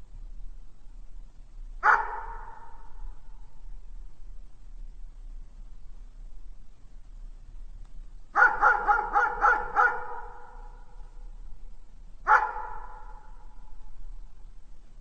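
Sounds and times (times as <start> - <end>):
dog barking with echo: 1.8 - 3.1, 8.4 - 10.9, 12.2 - 13.7.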